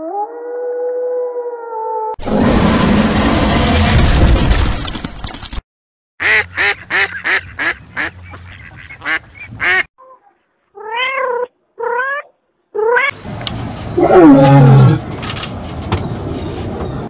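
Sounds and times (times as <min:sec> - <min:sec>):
loud noisy crash: 0:02.2 - 0:05.2.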